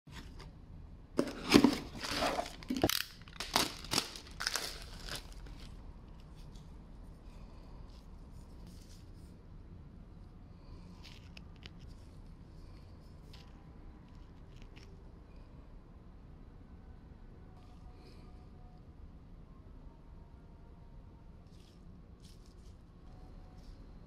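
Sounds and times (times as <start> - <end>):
cardboard and paper rustling: 1.2 - 6.5.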